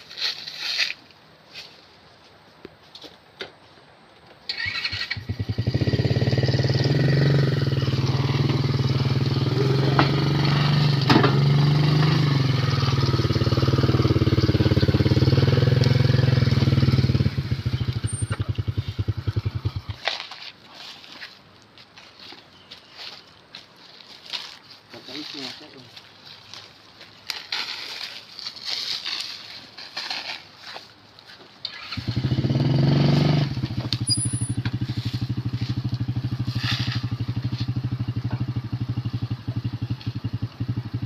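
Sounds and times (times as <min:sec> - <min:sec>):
small engine running and revving: 0:05.2 - 0:19.9, 0:31.7 - 0:41.0.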